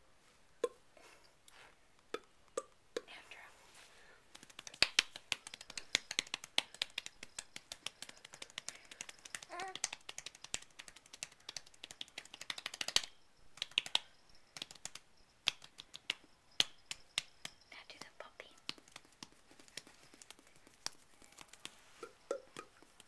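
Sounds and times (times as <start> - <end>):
rapid light hand clicking: 4.3 - 23.0
baby cooing: 9.4 - 9.9.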